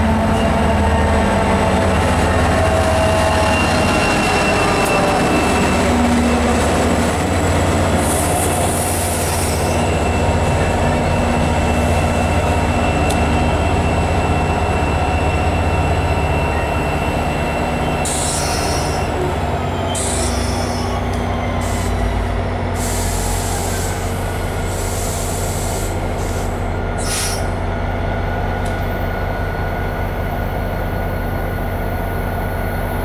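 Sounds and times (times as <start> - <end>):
train rumbling past: 0.0 - 33.0
wheel and brake squeal: 2.7 - 6.5, 8.1 - 22.2.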